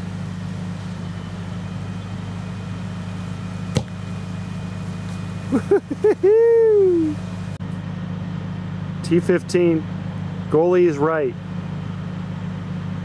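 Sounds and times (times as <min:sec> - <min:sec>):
foot kicking soccer ball: 0:03.7 - 0:04.0.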